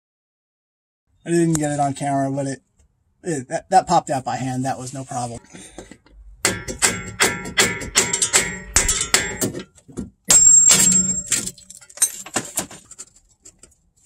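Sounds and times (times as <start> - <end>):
metal clanks and knocks: 5.8 - 13.6
scraping clatter: 10.8 - 13.8.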